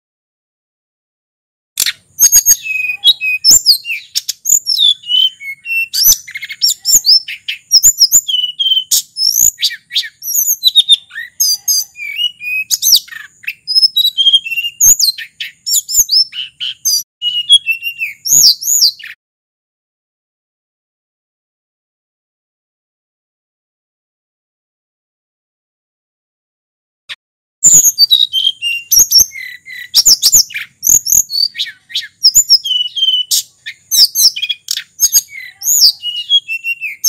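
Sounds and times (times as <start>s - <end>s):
sharp clicks: 1.8s - 2.0s
bird singing whistled phrases: 1.8s - 19.2s, 27.6s - 37.0s.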